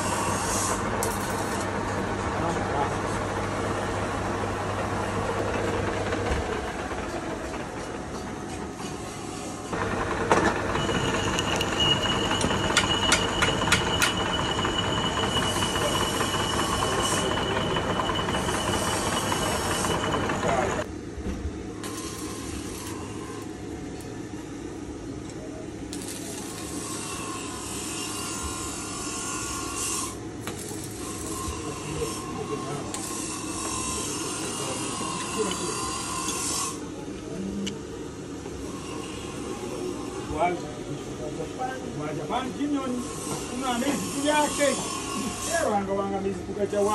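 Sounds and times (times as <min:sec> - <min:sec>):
steady high whine: 0:00.0 - 0:21.1
metal lathe running: 0:03.0 - 0:20.9.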